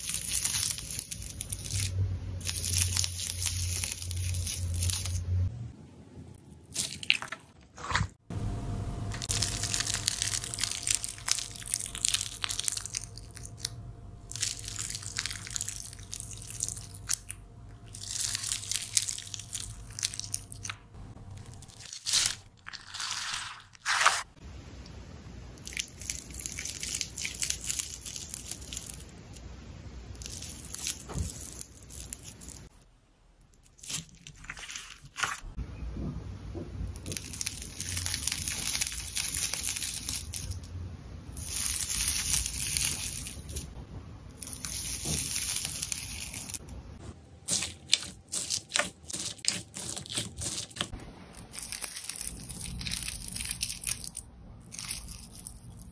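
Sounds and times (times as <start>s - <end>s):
slime squishing by hand: 0.0s - 5.2s, 9.2s - 24.4s, 37.0s - 40.7s, 41.3s - 55.9s.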